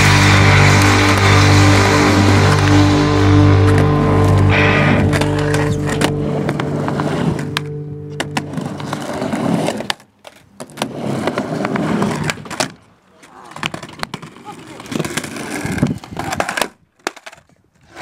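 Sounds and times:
music chord held: 0.0s - 9.8s
skateboard clacks: 5.1s - 18.0s
skateboard wheels rolling on ramp: 8.2s - 18.0s.

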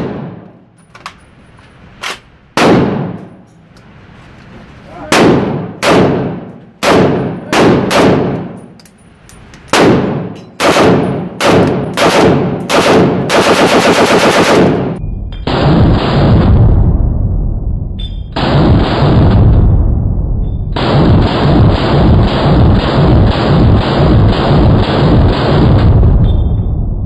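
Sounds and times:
rifle shots echoing indoors: 0.0s - 0.8s, 1.9s - 3.5s, 5.0s - 8.8s, 9.7s - 17.0s, 18.0s - 27.0s
full-auto rifle burst: 9.8s - 16.5s, 20.8s - 26.0s.

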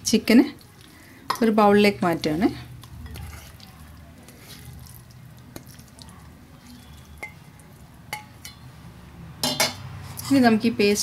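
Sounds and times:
wet squishing of raw chicken: 0.6s - 1.3s, 2.1s - 8.0s.

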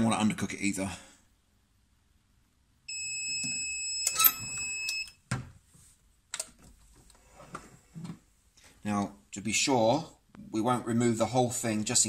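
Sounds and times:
high electronic timer beep: 2.9s - 5.2s.

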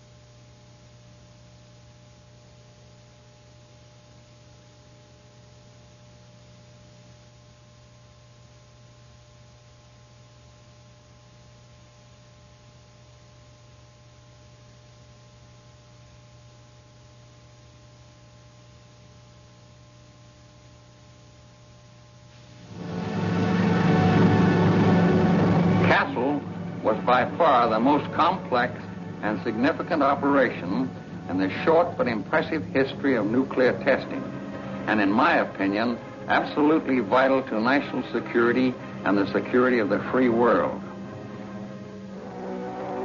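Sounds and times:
faint electrical hum: 0.0s - 43.0s
tape hiss: 0.0s - 43.0s
thin steady tones: 22.3s - 43.0s.

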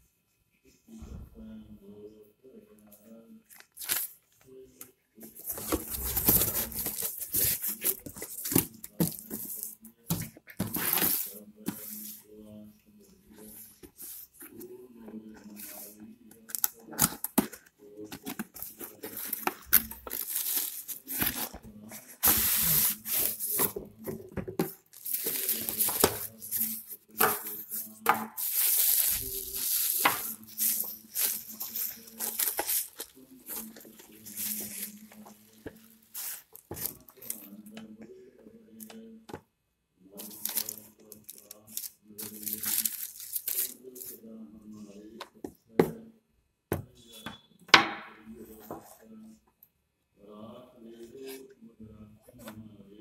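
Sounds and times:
plastic packaging crinkling: 18.2s - 23.7s, 24.7s - 26.9s, 28.4s - 37.6s, 40.2s - 44.1s.

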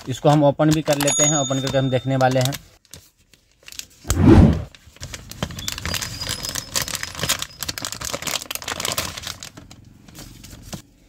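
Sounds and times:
plastic bag crinkling: 5.0s - 9.8s.

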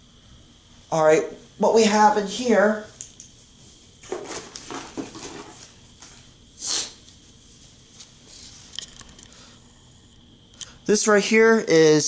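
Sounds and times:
person stepping about: 3.4s - 6.4s
cardboard packaging rustling: 4.0s - 6.2s.

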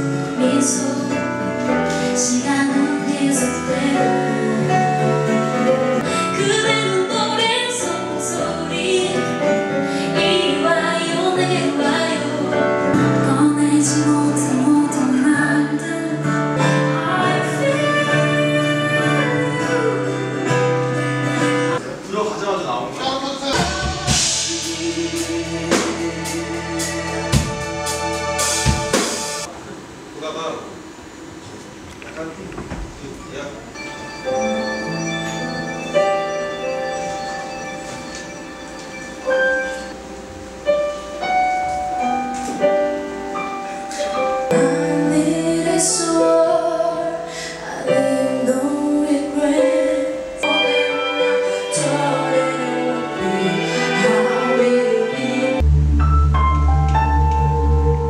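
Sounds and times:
woman singing into a microphone: 0.0s - 5.4s, 6.0s - 20.9s, 23.6s - 26.0s, 44.5s - 55.6s
keyboard chords: 0.0s - 22.0s, 23.2s - 29.5s, 33.2s - 58.0s
drum kit strikes: 23.4s - 29.5s
low bass notes: 23.4s - 29.5s, 55.6s - 58.0s.

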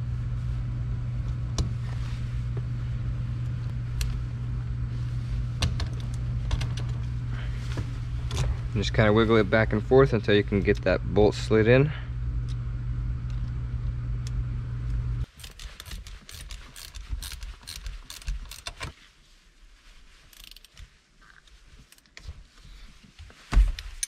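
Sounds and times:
steady low hum: 0.0s - 18.8s
metallic shifter clicks and rattles: 15.3s - 18.9s.

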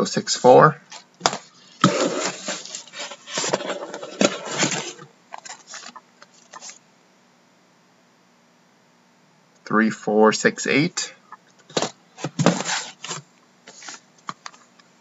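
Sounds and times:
cardboard boxes scraping: 1.2s - 6.8s, 11.8s - 14.0s.

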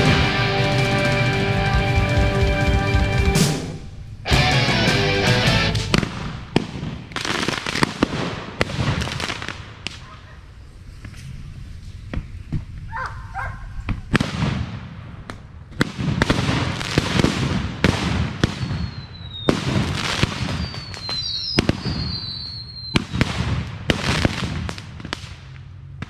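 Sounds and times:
fireworks cracking and popping: 0.0s - 12.9s, 13.9s - 26.0s
high firework whistles: 5.8s - 12.9s, 16.0s - 25.1s.

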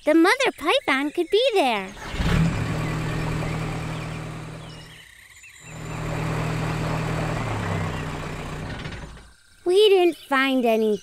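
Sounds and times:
cartoon jeep engine hum: 1.6s - 10.3s.

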